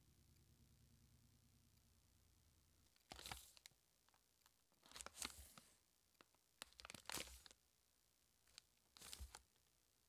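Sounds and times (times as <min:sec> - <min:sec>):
plastic wrapper crinkling: 0:02.9 - 0:07.6, 0:08.5 - 0:09.6.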